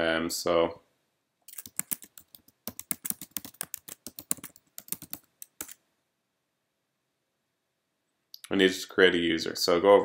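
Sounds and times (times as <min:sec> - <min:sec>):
laptop keyboard typing: 0:01.5 - 0:05.8.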